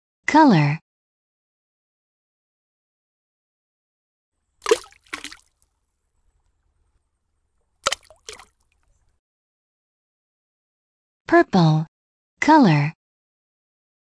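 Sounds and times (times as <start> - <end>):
cartoon liquid splashes: 4.6 - 5.6, 7.8 - 8.7.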